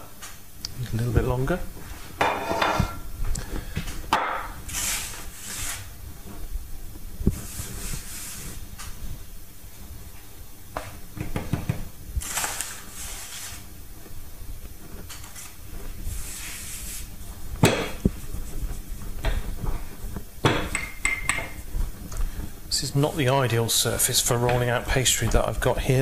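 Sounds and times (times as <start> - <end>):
hands rubbing pastry dough: 4.6 - 10.4, 12.0 - 20.4.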